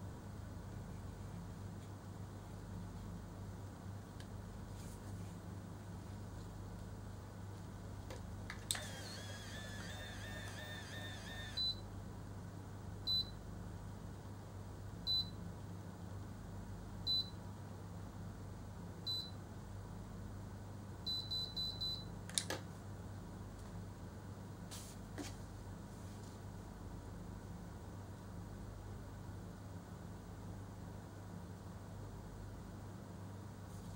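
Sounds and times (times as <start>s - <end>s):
hair curler whirring: 8.5s - 11.7s
short high beeps: 9.0s - 11.8s.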